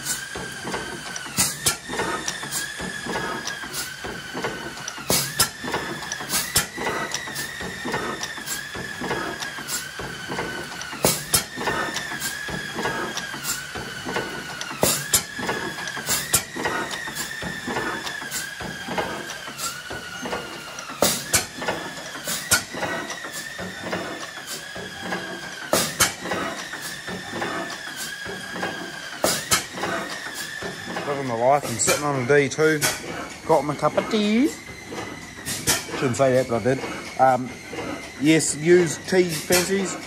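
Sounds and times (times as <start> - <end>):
oil engine running: 0.0 - 40.0
valve gear clicking: 0.0 - 40.0.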